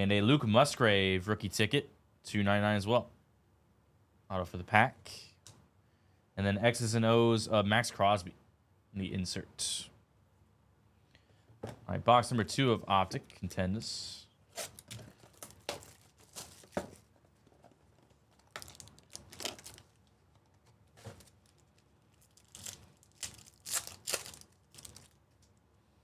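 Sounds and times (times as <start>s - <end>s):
foil packs crinkling and tearing: 14.5s - 17.1s, 18.3s - 20.1s, 20.9s - 25.3s.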